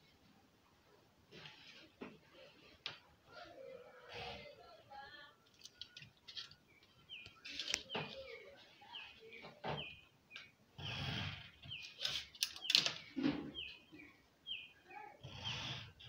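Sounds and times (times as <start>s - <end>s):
bird chirping: 5.6s - 15.7s.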